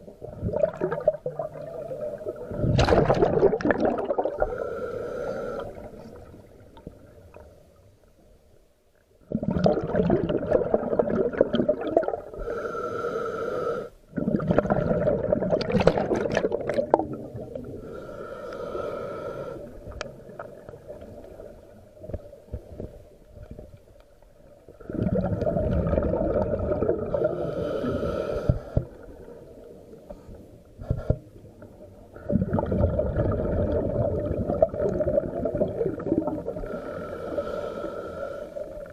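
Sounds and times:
exhaled bubbles rushing: 0.0s - 4.6s, 9.3s - 12.4s, 14.1s - 17.8s, 24.8s - 27.5s, 32.2s - 36.8s
regulator inhale hiss: 4.4s - 6.2s, 12.3s - 14.1s, 17.6s - 20.0s, 27.2s - 29.2s, 30.1s - 31.6s, 36.5s - 38.9s.

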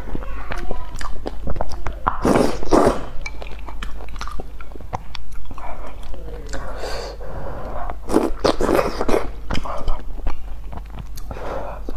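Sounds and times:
chewing and wet mouth clicks: 0.5s - 2.4s, 3.2s - 6.7s, 7.8s - 11.9s
loud slurps: 2.1s - 3.2s.

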